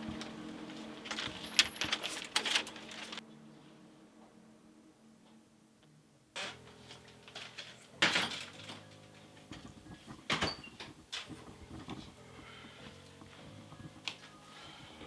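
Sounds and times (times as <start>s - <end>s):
wooden door opening and shutting: 7.3s - 12.0s.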